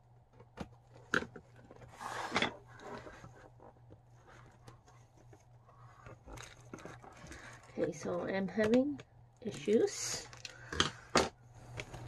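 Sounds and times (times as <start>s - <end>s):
cardboard crackling scrape: 1.8s - 4.6s.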